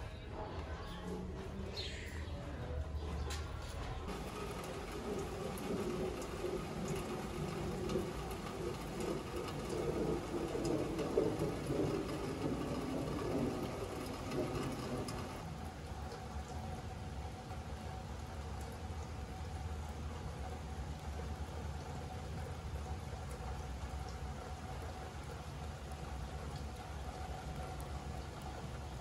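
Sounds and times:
raindrop ticks: 0:03.2 - 0:29.0
steady rain hiss: 0:04.1 - 0:29.0.

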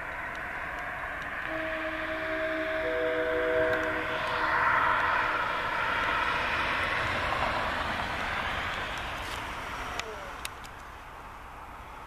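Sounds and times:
train roar: 0:00.0 - 0:12.0
train air horn chord: 0:01.4 - 0:05.6.

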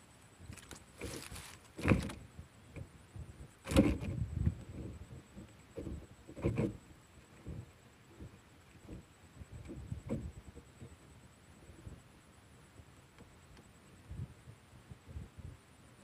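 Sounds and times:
microphone handling knocks and scrapes: 0:00.5 - 0:11.0.

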